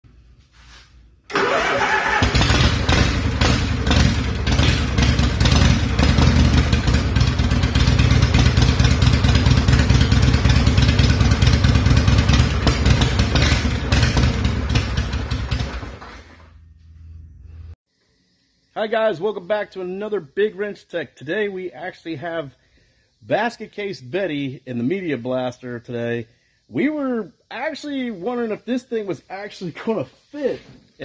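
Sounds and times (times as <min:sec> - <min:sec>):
motorcycle engine running: 0:02.0 - 0:17.7.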